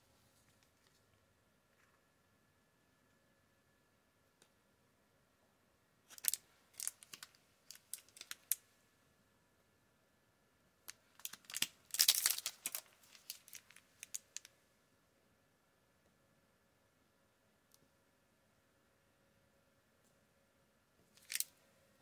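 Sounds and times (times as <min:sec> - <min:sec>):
foil wrapper crinkling: 0:06.1 - 0:08.6, 0:11.1 - 0:14.5, 0:21.2 - 0:21.5
foil pack tearing: 0:11.2 - 0:13.6.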